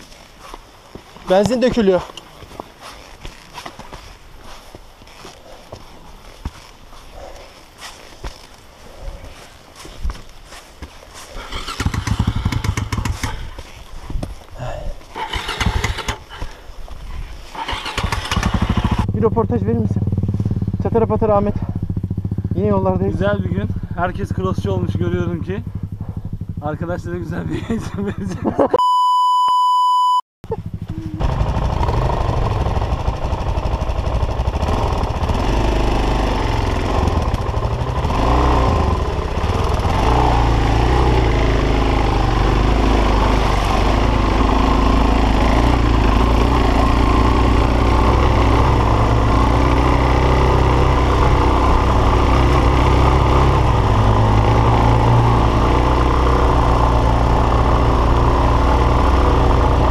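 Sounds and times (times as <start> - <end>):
motorcycle engine revving: 11.2 - 13.8, 15.1 - 16.4, 17.5 - 27.8, 30.6 - 59.9
electronic beep: 28.8 - 30.2.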